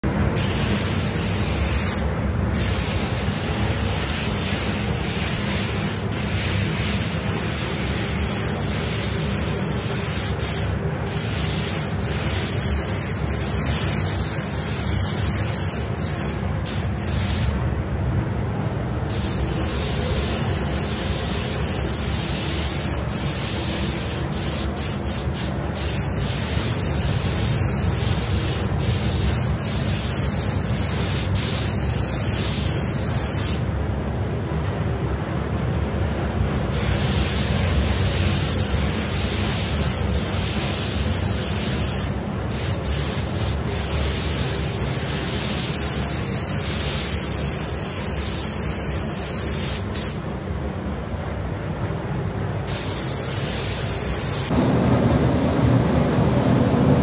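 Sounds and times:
paint spray gun hissing: 0.4s - 17.6s, 19.1s - 33.6s, 36.7s - 50.2s, 52.7s - 54.5s.

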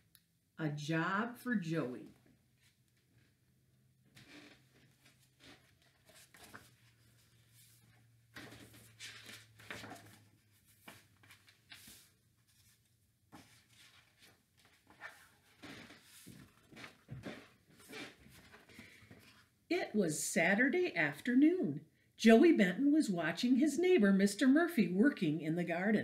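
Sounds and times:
book pages turning: 4.2s - 19.5s.

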